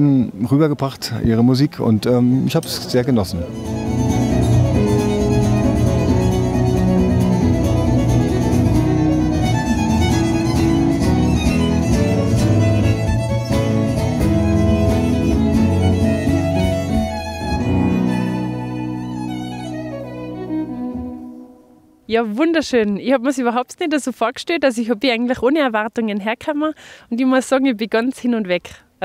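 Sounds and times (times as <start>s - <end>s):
fiddle melody: 2.8s - 22.1s
stage piano chords: 3.3s - 22.1s
strummed cittern: 3.3s - 22.1s
deep bass: 3.5s - 21.4s.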